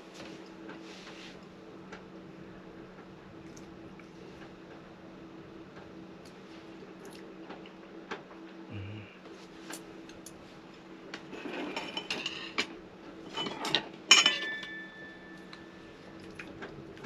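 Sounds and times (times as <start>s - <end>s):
faint steady hum: 0.0s - 17.0s
dishes and cutlery clattering: 11.3s - 12.7s, 13.3s - 15.0s
sharp ringing clink: 14.1s - 15.6s.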